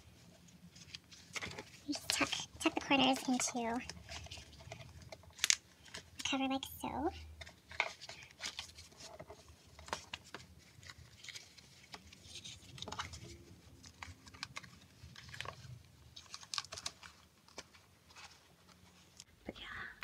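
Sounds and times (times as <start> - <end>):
plastic cover clicking and crinkling: 0.8 - 6.6, 7.4 - 17.9.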